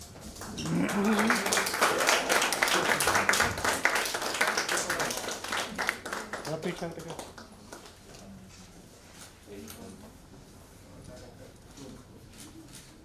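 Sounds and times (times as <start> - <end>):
audience applauding: 0.4 - 8.0
person speaking: 0.6 - 3.3.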